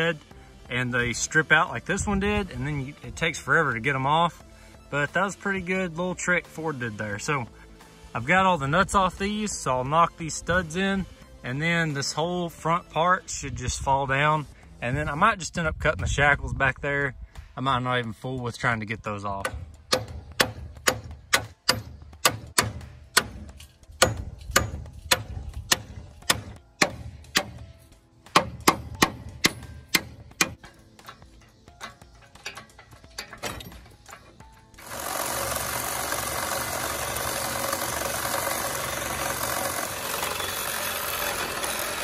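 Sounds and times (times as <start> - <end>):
hammer striking steel: 19.4 - 35.6.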